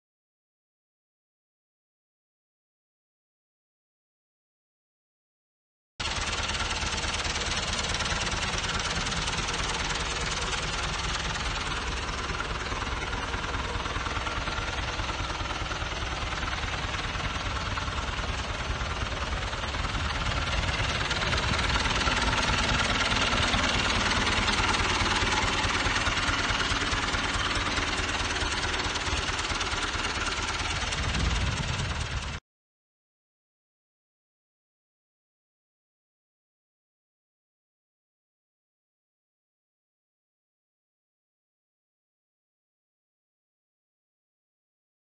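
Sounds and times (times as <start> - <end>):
tractor diesel engine idling: 6.0 - 32.4.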